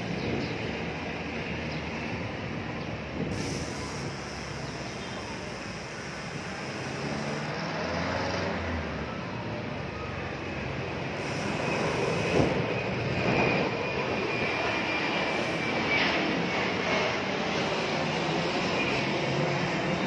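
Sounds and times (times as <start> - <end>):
constant rushing noise: 0.0 - 7.8, 8.5 - 20.0
passing vehicle engines: 0.0 - 20.0.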